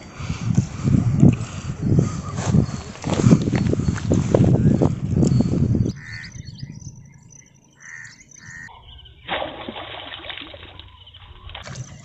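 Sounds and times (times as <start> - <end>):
rough rustling noise: 0.0 - 5.8
crow cawing: 6.0 - 6.4, 7.7 - 8.7.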